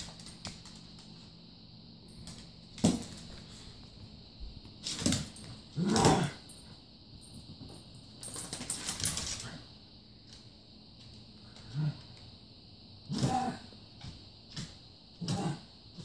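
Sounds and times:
claws clicking on hardwood floor: 0.0s - 1.3s, 7.3s - 9.6s.

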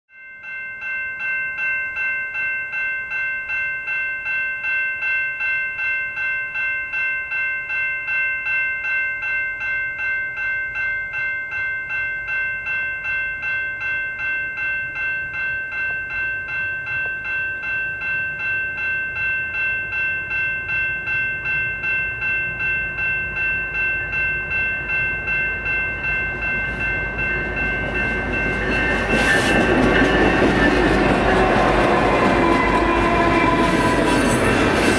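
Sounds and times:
level crossing bell ringing: 0.1s - 34.8s
train locomotive noise: 20.6s - 34.9s.

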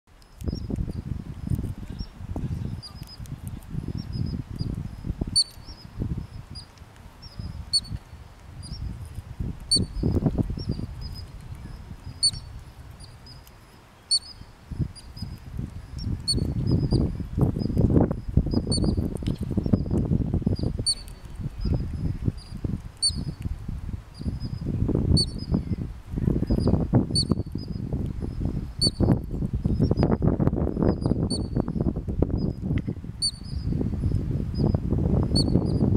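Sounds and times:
ground squirrel alarm chirps: 2.8s - 8.0s, 9.7s - 13.5s, 14.1s - 19.0s, 19.6s - 21.3s, 22.4s - 23.3s.

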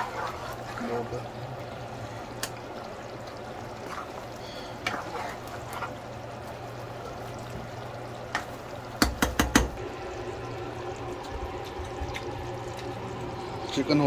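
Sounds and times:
spatula stirring gravy: 0.0s - 1.2s, 3.7s - 7.7s
curry bubbling in a pan: 0.0s - 14.0s
spatula knocking against pan: 8.3s - 9.8s.

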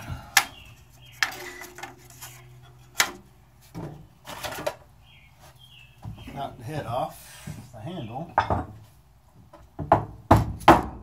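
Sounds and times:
tools knocking on metal table: 8.4s - 8.7s.

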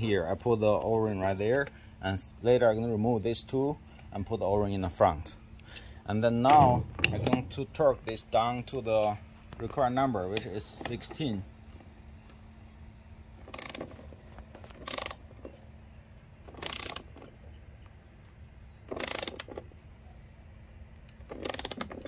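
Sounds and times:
torque wrench ratchet clicking: 13.4s - 14.0s, 14.7s - 15.2s, 16.5s - 17.1s, 18.9s - 19.6s, 21.3s - 22.0s.

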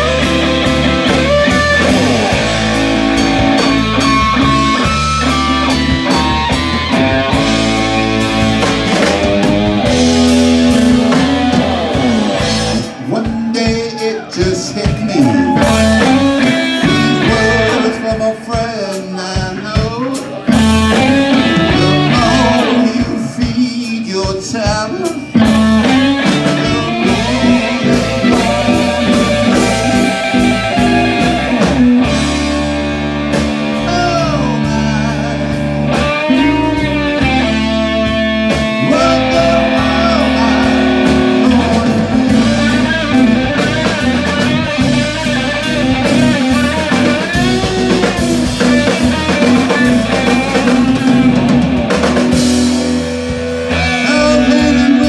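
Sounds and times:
blues-rock band playing: 0.0s - 55.0s
electric guitar lead: 0.0s - 55.0s.

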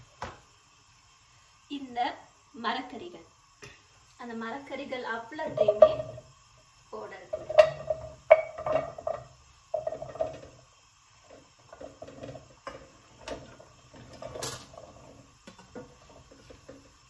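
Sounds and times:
vegetables rattling into a pan: 5.3s - 6.3s, 7.0s - 17.0s.

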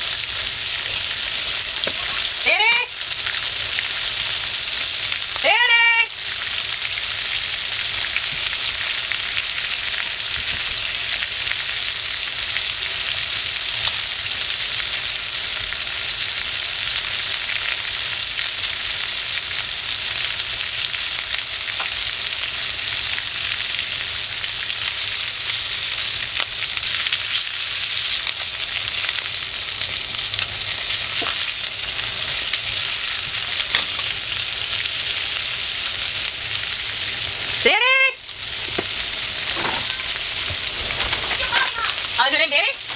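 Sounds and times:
chicken sizzling in oil: 0.0s - 42.9s
oil popping: 25.5s - 37.3s, 38.3s - 42.2s.

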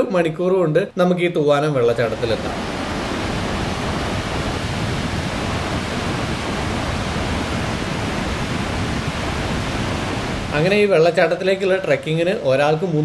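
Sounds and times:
water rushing over rocks: 2.0s - 10.8s.

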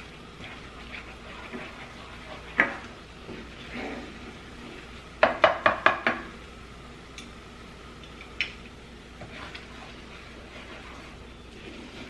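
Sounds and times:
wooden spoon knocking on frying pan: 5.2s - 6.3s.

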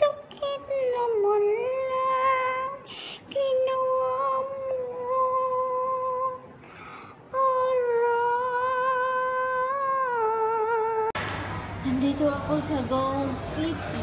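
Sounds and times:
woman breathing: 2.8s - 3.3s, 6.5s - 7.3s.

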